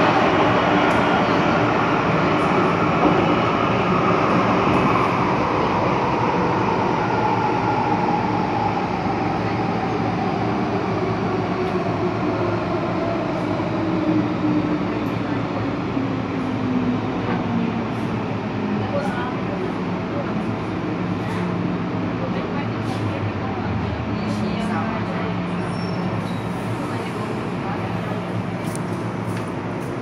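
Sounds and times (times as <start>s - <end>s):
train rail running noise: 0.0s - 30.0s.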